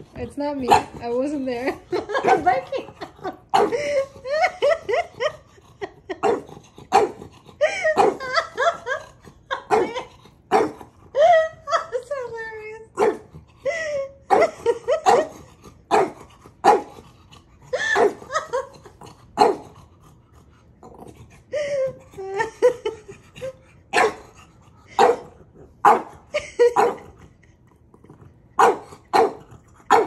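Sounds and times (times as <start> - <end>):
dog barking and yelping: 0.6 - 1.2, 6.1 - 11.5, 13.0 - 13.3, 14.3 - 17.0, 17.7 - 18.7, 19.4 - 19.8, 23.4 - 27.2, 28.6 - 30.0.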